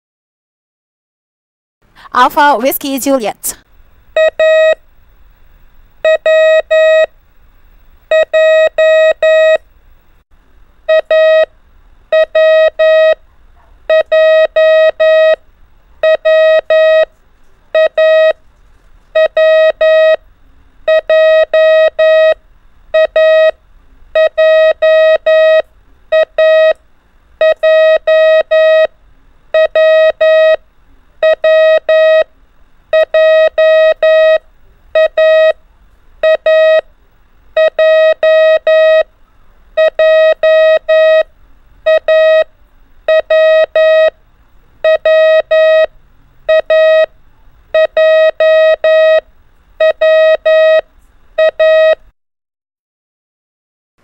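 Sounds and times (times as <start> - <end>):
morse code beeps: 4.2 - 4.8, 6.1 - 7.1, 8.1 - 9.6, 10.9 - 11.5, 12.1 - 13.2, 13.9 - 15.4, 16.0 - 17.1, 17.8 - 18.4, 19.2 - 20.2, 20.9 - 22.4, 23.0 - 23.6, 24.2 - 26.8, 27.4 - 28.9, 29.6 - 30.6, 31.2 - 32.3, 32.9 - 34.4, 35.0 - 35.6, 36.2 - 36.8, 37.6 - 39.1, 39.8 - 41.3, 41.9 - 42.5, 43.1 - 44.1, 44.8 - 45.9, 46.5 - 47.1, 47.8 - 49.2, 49.8 - 50.8, 51.4 - 52.0.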